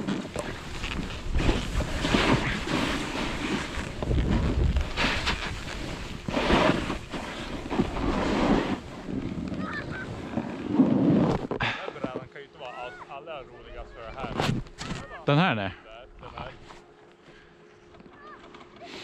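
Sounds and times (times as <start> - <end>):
skis scraping over snow: 0.0 - 12.9
wind rushing over microphone: 1.0 - 9.4.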